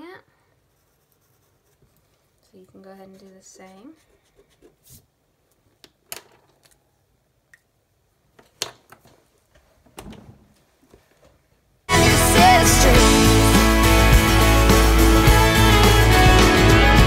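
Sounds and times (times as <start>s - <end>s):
background music: 11.9s - 17.0s.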